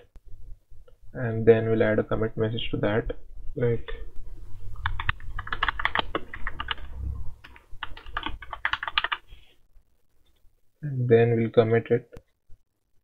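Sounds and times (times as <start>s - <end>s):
typing on keyboard: 4.8s - 9.2s.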